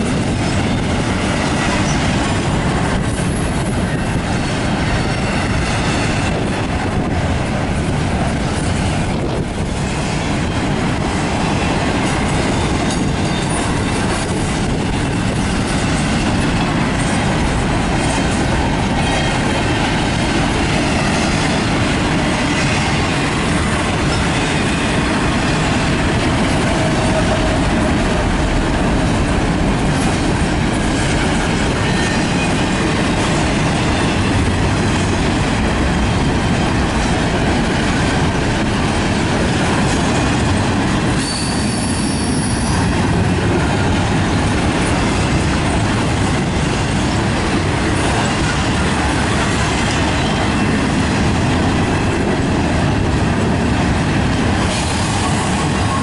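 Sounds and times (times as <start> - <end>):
steel wheels rolling on track: 0.0 - 56.0
high wheel squeal: 41.2 - 42.9.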